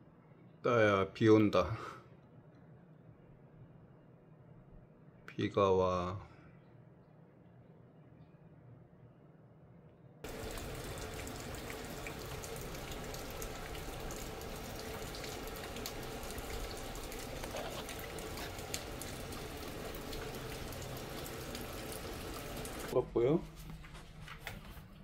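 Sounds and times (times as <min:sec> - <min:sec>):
rain on concrete and leaves: 0:10.2 - 0:23.0.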